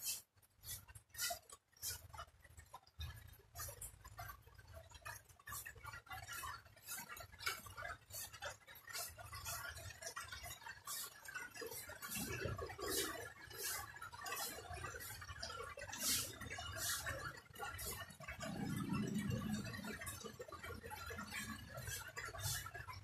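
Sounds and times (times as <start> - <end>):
broom sweeping leaves: 16.0 - 17.1.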